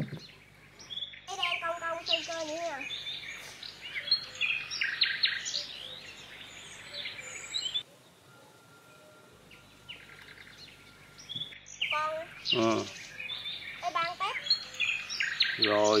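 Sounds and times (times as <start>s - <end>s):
small birds chirping: 0.0s - 16.0s
faint steady high tone: 7.4s - 12.9s.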